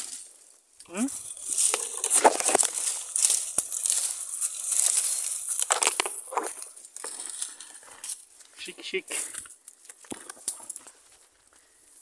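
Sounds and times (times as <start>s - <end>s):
dry leaves crunching: 0.0s - 11.6s
branches scraping and crackling: 0.0s - 12.0s
twig snapping: 1.3s - 8.2s.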